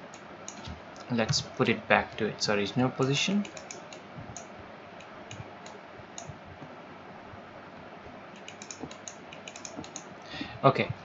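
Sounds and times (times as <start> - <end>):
faint steady hiss: 0.0 - 11.0
keyboard and mouse clicks: 3.4 - 6.4, 8.4 - 10.1.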